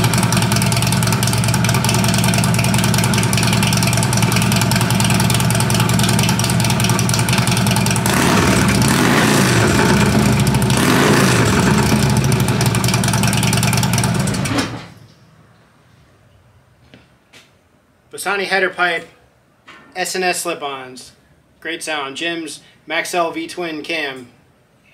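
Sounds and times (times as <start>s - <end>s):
motorcycle engine idling and revving: 0.0s - 14.9s.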